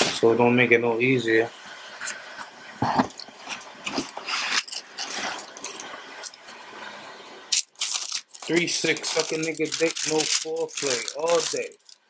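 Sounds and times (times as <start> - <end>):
tissue paper rustling: 7.6 - 12.0.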